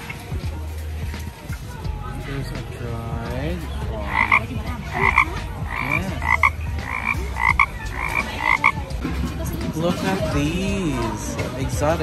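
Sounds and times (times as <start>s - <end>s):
frogs croaking: 4.0s - 8.9s.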